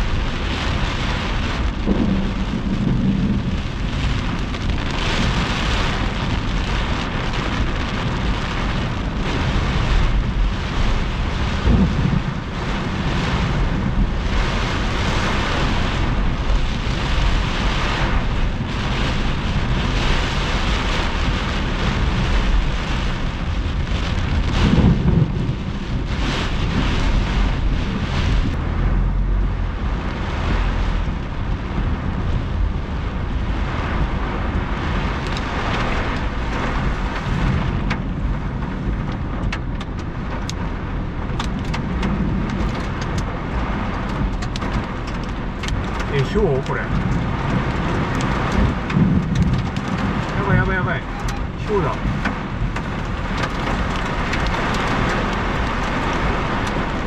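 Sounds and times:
heavy rain beating on car: 0.0 - 57.0
low rumble of wind and road: 0.0 - 57.0
raindrops ticking on glass: 33.6 - 57.0.

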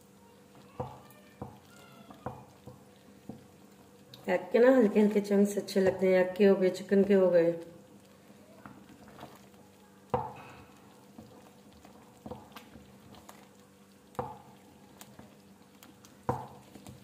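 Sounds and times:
wooden spoon knocking on a pot: 0.8 - 3.5, 10.1 - 10.5, 12.2 - 12.8, 14.1 - 14.5, 16.2 - 17.0.

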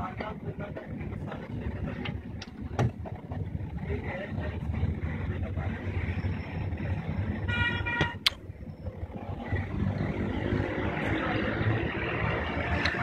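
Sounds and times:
traffic rumble: 0.0 - 13.0
vehicle horn toot: 7.5 - 8.2
sharp click: 8.2 - 8.4.

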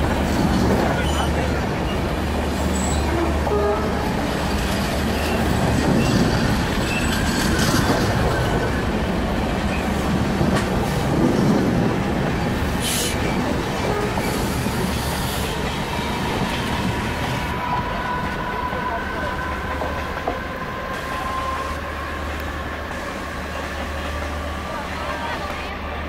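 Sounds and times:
rail clicks: 0.0 - 25.8
train wheels rumbling on rails: 0.0 - 26.0.

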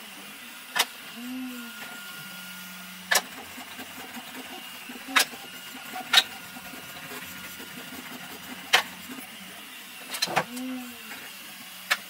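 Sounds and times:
steady low hum: 2.6 - 9.6.

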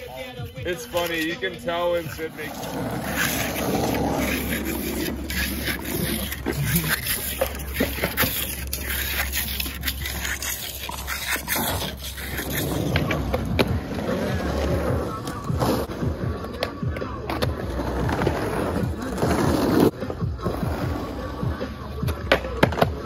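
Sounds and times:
trowel scraping wet concrete: 0.0 - 15.9
skateboard wheels on asphalt: 0.0 - 23.0.

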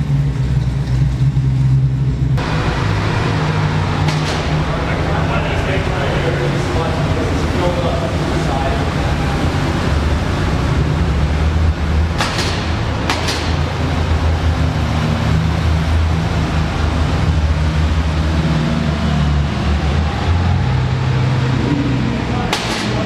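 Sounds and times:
car engines idling and rumbling: 0.0 - 23.0
sharp cracks: 2.4 - 7.2, 12.0 - 14.6, 22.5 - 23.0.

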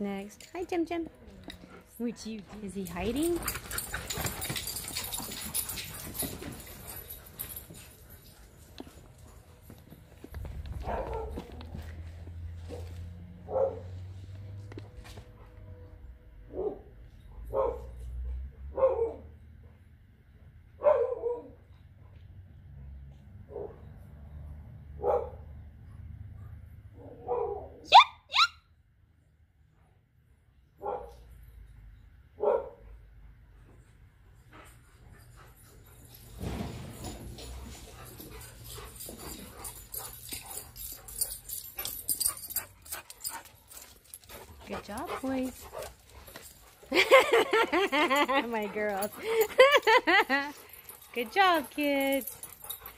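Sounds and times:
dog barking: 10.8 - 11.5, 13.4 - 14.0, 16.5 - 16.9, 17.5 - 18.0, 18.7 - 19.3, 20.8 - 21.6, 25.0 - 25.5, 27.0 - 28.5, 30.8 - 31.2, 32.4 - 32.8.

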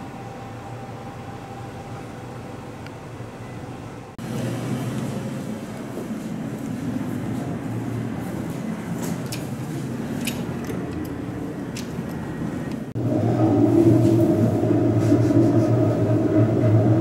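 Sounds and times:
elevator low hum: 0.0 - 17.0
mechanical drone: 10.5 - 17.0.

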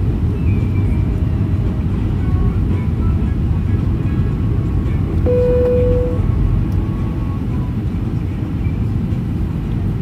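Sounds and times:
jet engine rumble in cabin: 0.0 - 10.0
brief steady tone: 5.3 - 6.2.

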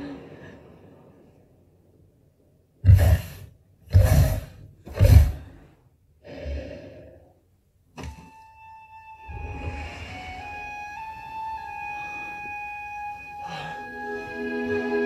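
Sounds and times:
flute-like melody: 8.1 - 15.0.

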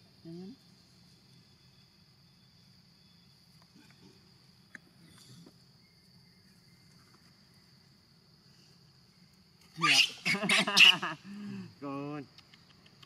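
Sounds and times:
high-pitched insect drone: 0.0 - 13.0.

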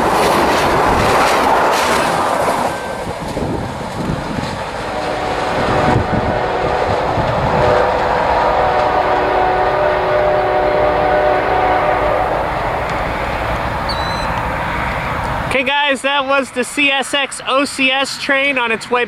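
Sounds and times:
train wheels rolling on rails: 0.0 - 18.0
locomotive horn chord: 4.8 - 12.9.

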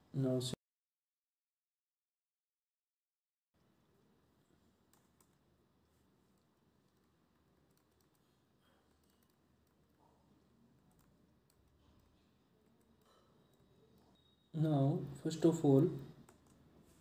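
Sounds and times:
faint computer mouse clicks: 6.9 - 9.8.

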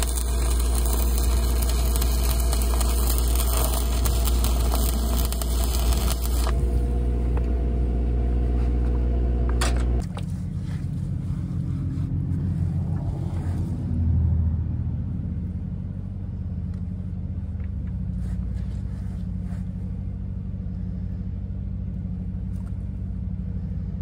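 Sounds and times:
welding arc crackling: 0.0 - 7.6
engine drone: 0.0 - 24.0.

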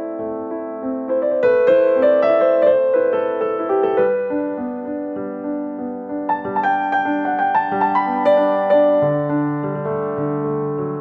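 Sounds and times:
slow piano melody: 0.0 - 11.0.

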